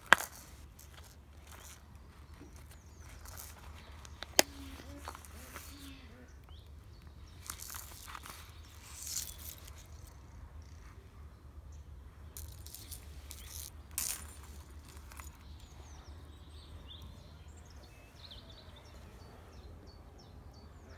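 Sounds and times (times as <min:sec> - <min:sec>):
leather rustling: 0:00.0 - 0:05.9, 0:07.2 - 0:10.2
faint bird chirps: 0:01.4 - 0:12.0.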